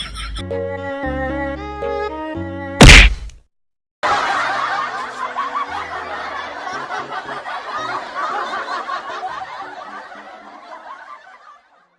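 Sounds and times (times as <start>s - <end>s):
crowd chuckling laugh track: 0.0s - 0.4s, 4.0s - 11.9s.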